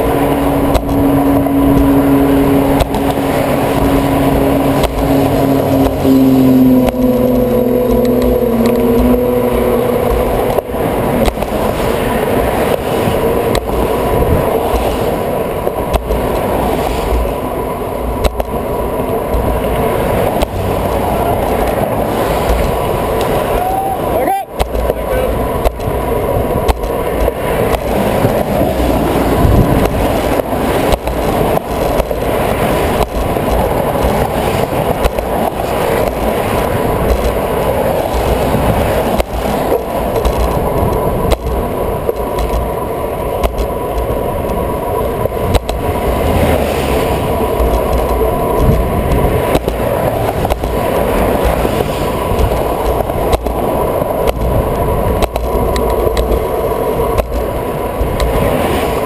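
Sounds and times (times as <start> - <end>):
low road rumble: 0.0 - 59.0
steady tone: 0.0 - 59.0
wind buffeting camera: 0.0 - 59.0
bike and mount rattling: 24.5 - 59.0.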